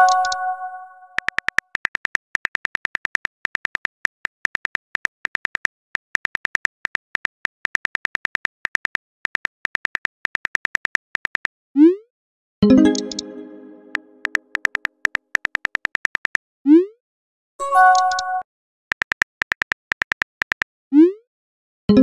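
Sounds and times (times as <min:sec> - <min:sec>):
phone keyboard taps: 0:14.2 - 0:16.4, 0:18.9 - 0:20.7.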